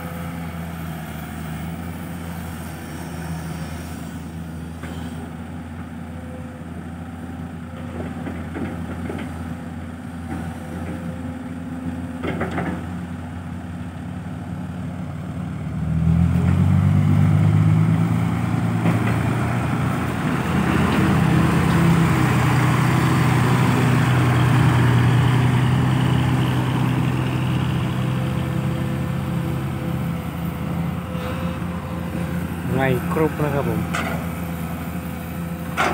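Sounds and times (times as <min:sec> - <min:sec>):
excavator idling: 0:04.2 - 0:15.8, 0:17.6 - 0:35.9
dump truck diesel engine revving: 0:15.1 - 0:35.9.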